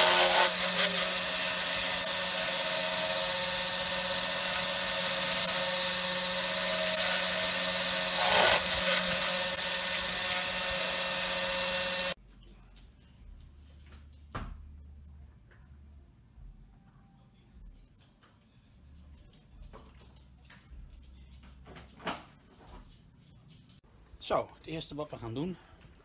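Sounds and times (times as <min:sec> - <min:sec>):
router spindle whine cutting wood: 0:00.0 - 0:12.2.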